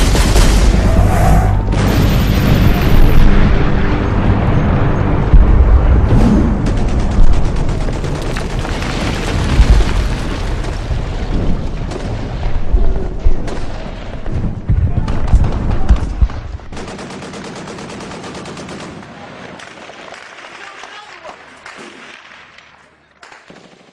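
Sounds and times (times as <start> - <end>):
rapid automatic gunfire: 6.5 - 12.7, 15.3 - 19.0, 23.4 - 23.9.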